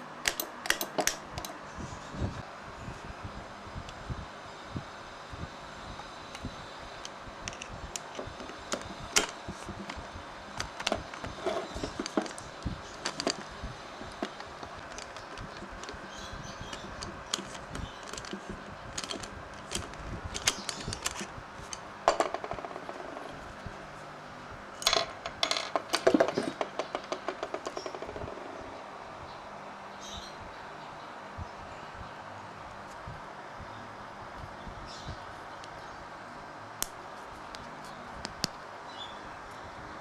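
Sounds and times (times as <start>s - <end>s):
screwdriver clicking on metal: 0.2s - 1.6s, 10.6s - 21.8s.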